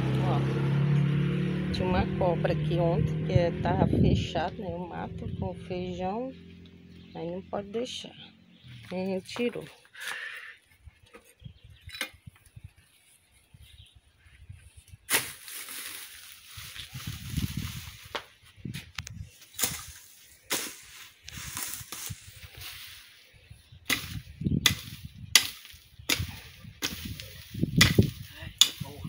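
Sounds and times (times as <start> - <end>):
rustling of cut plants: 8.6 - 11.4, 12.2 - 29.0
hoe striking dry soil: 15.1 - 15.6, 19.5 - 23.1, 23.8 - 29.0.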